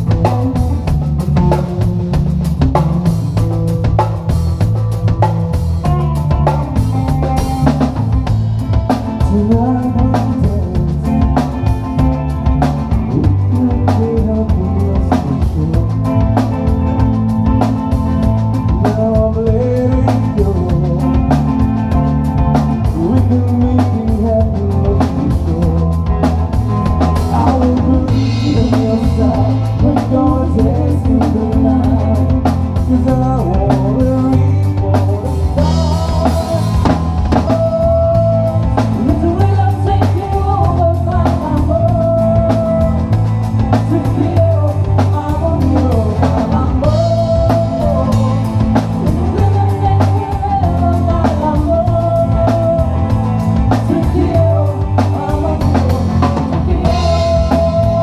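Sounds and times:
drum kit: 0.0 - 58.0
electric bass guitar: 0.0 - 58.0
woman singing into a microphone: 27.3 - 58.0.

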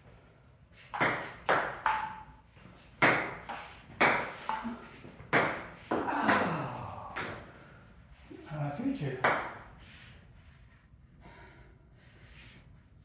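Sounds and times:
ping pong ball hitting paddles: 0.9 - 2.4, 3.0 - 7.6, 9.2 - 9.7
ball bouncing on table: 1.0 - 2.3, 5.3 - 6.5, 9.2 - 9.6.

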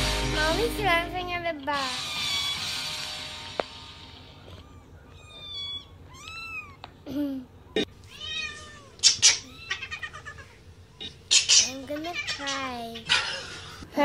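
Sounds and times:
kittens meowing: 1.9 - 2.8, 4.3 - 7.0, 7.6 - 13.1.

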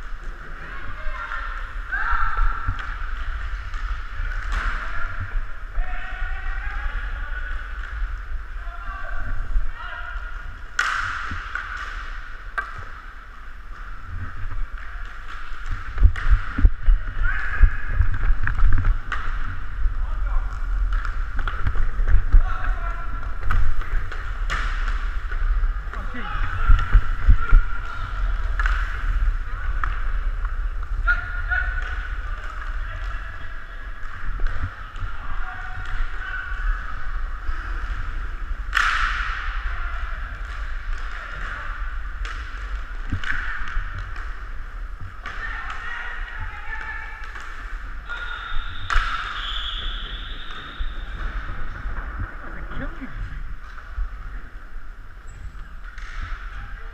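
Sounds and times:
skates scraping: 0.0 - 56.9
sharp crack: 10.6 - 13.1, 18.0 - 33.2, 34.0 - 52.2.

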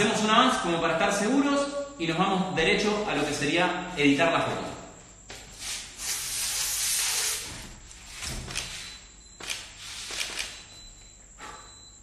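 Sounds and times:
aerosol can spraying: 6.0 - 7.5.

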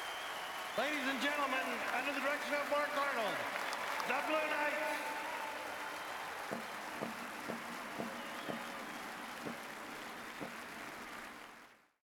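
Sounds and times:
stadium crowd applause: 0.0 - 12.0
single drum beats: 6.5 - 8.7.

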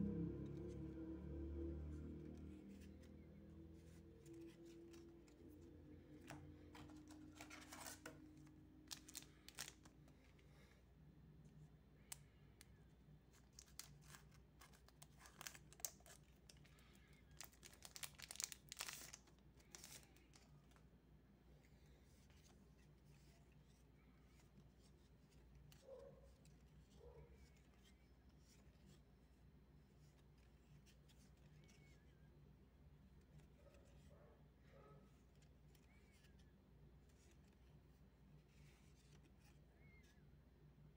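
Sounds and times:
foil wrapper tearing and crinkling: 13.6 - 16.2, 17.4 - 20.0.

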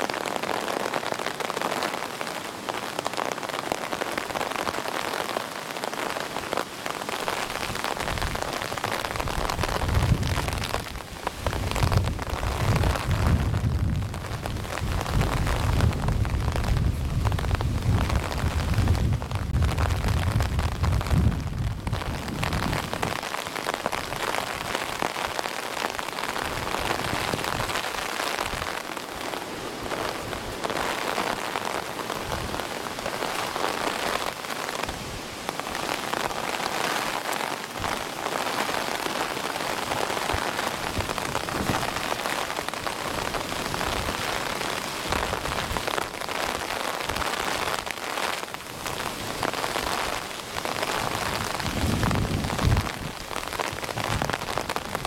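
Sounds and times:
steady rain pattering: 0.0 - 55.0
wind rumbling on microphone: 7.4 - 34.1, 37.7 - 55.0.

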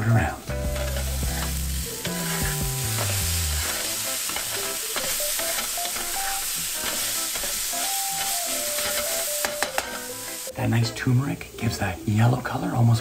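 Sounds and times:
background music: 0.0 - 13.0
tofu sizzling in a pan: 0.3 - 10.6
spatula scraping a pan: 0.6 - 10.5.

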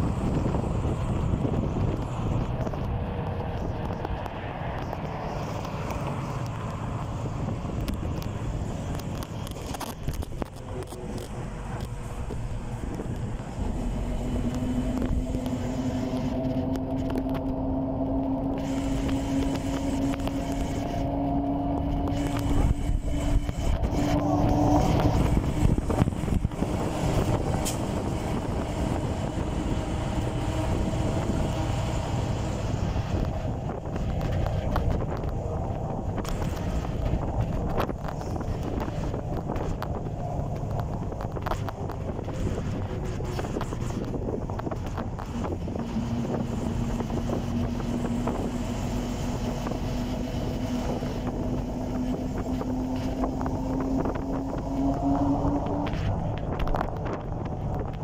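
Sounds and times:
bus engine rumble: 0.0 - 58.0
road noise: 0.0 - 58.0
air rush: 10.6 - 39.3.

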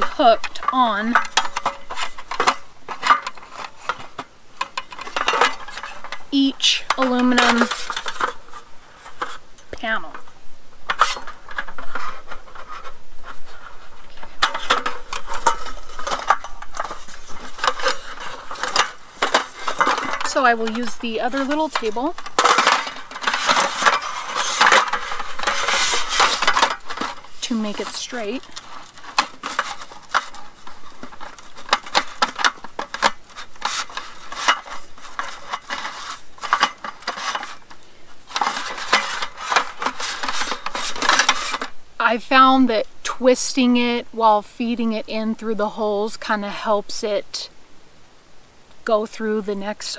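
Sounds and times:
aluminium slats clinking and rattling: 0.0 - 9.4, 14.4 - 41.7.

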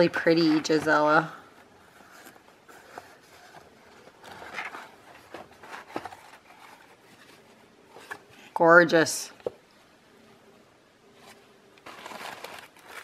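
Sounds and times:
paper rustling: 1.8 - 8.6, 11.2 - 13.0.

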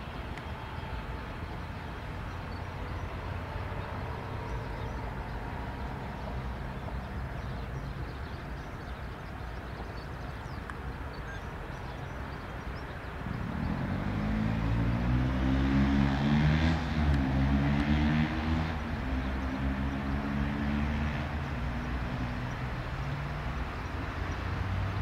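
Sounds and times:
jet taxiing with faint whine: 0.0 - 13.8.

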